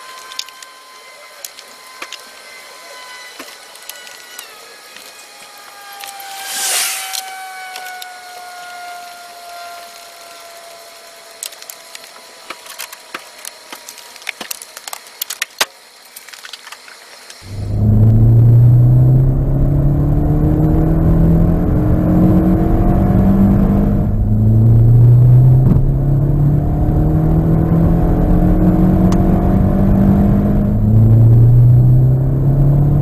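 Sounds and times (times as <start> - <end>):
faint whine dropping in pitch: 0.0 - 16.6, 17.2 - 33.0
aerosol spray can hissing: 6.4 - 7.3.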